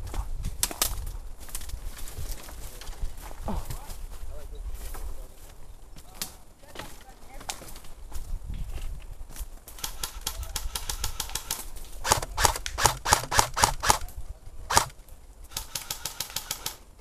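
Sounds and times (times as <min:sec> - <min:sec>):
airsoft guns firing: 0:09.8 - 0:14.1, 0:14.7 - 0:16.8.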